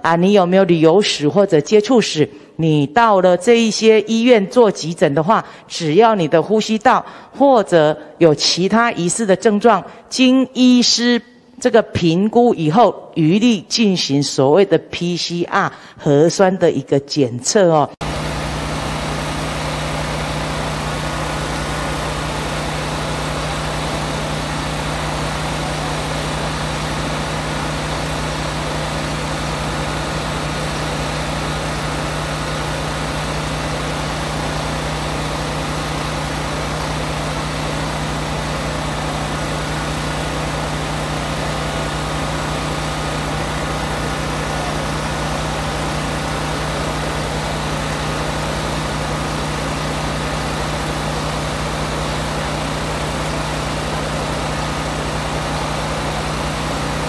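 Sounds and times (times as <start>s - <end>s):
engine idling: 18.0s - 57.0s.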